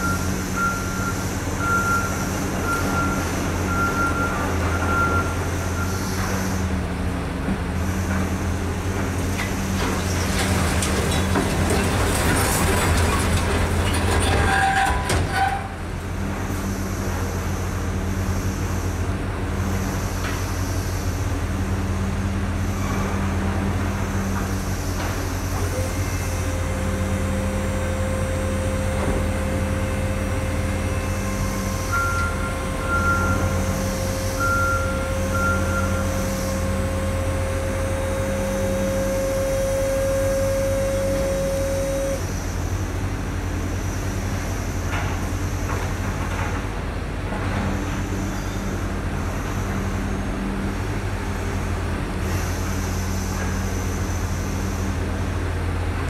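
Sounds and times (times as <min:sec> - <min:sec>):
truck engine running: 0:21.1 - 0:56.0
steady whine: 0:25.6 - 0:44.4
short high beeps: 0:31.9 - 0:33.6.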